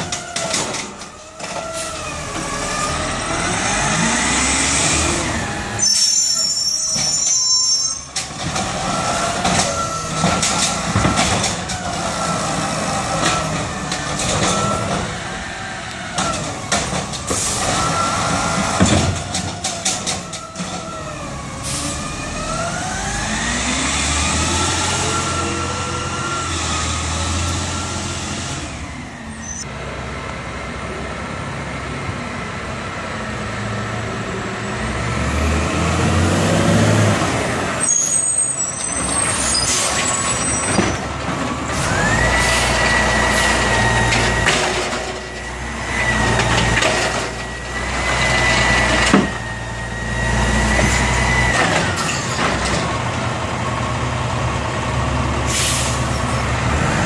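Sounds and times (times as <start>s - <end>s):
air brake hisses: 55.5s - 56.2s.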